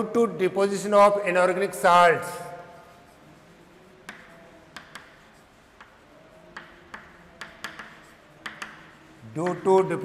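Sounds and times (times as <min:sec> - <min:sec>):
chalk tapping on blackboard: 0:02.9 - 0:10.0.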